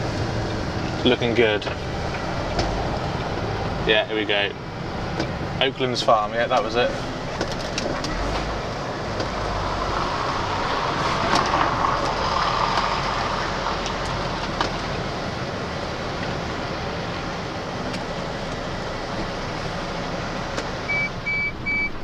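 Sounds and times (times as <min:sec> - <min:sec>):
broad rushing noise: 0:00.0 - 0:16.1
lorry diesel engine running: 0:00.0 - 0:22.0
road noise: 0:00.0 - 0:22.0.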